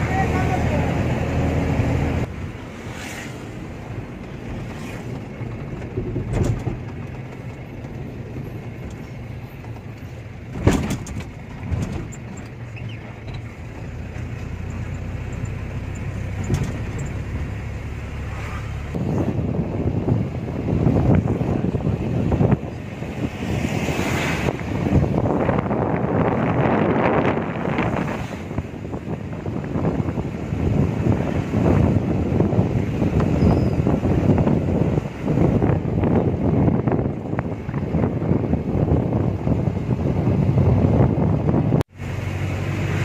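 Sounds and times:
lorry engine and road rumble: 0:00.0 - 0:43.0.

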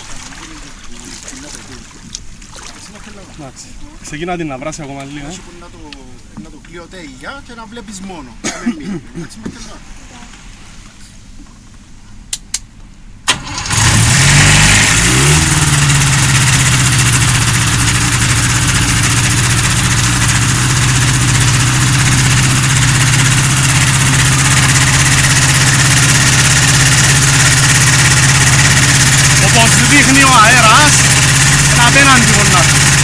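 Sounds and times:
engine starting and idling: 0:13.2 - 0:33.0.

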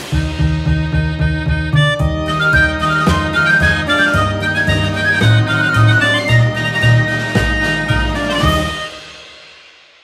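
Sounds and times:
background music with bass line: 0:00.0 - 0:09.5.

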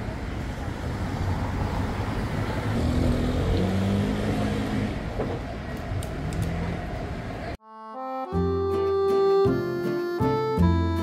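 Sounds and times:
low hum of engines: 0:00.0 - 0:07.6
road traffic: 0:00.0 - 0:11.0.

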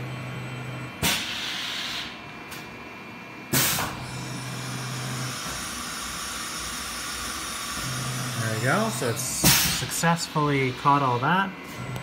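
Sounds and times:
low machine hum: 0:00.0 - 0:12.0
compressed air hiss: 0:09.4 - 0:10.0.

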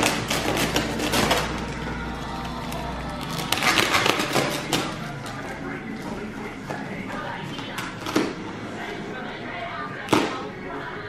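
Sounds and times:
plastic wrapping crinkling: 0:00.0 - 0:08.4.

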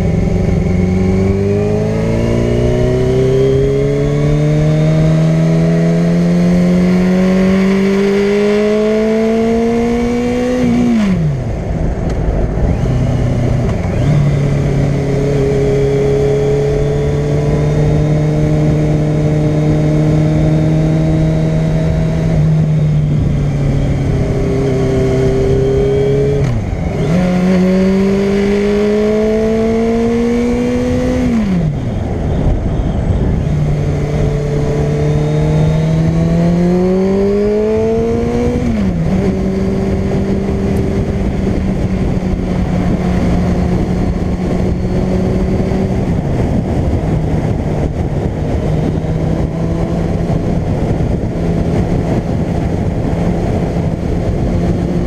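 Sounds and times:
motorcycle engine accelerating: 0:00.0 - 0:55.0
riding wind: 0:00.0 - 0:55.0.

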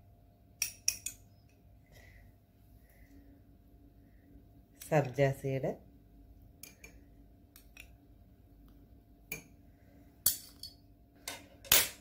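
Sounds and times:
metal spoon clinking on glass: 0:00.6 - 0:01.2.

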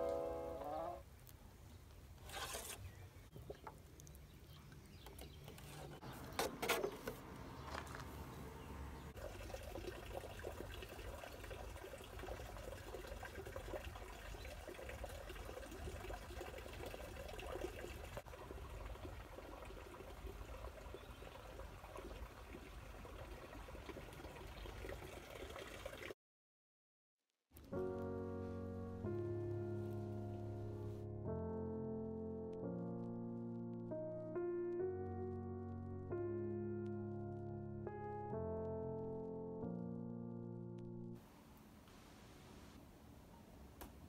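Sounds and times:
water trickling and pouring: 0:09.2 - 0:26.2.

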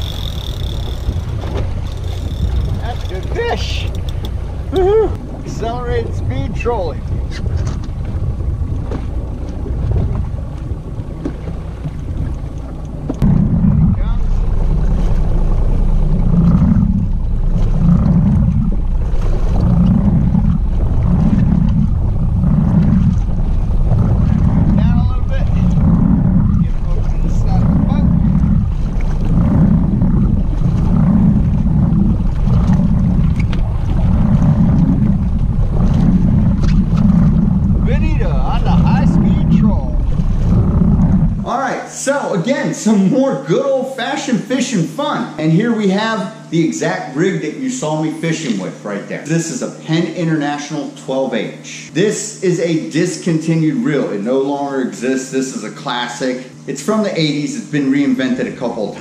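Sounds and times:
wind buffeting microphone: 0:00.0 - 0:41.5
outboard boat engine rumble: 0:00.0 - 0:59.0
water against hull: 0:00.0 - 0:59.0.

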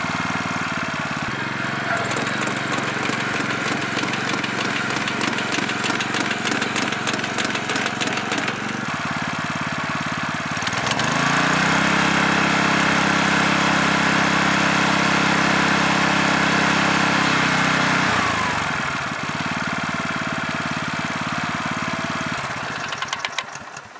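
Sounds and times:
single-cylinder engine chugging: 0:00.0 - 0:11.4, 0:18.4 - 0:23.9.

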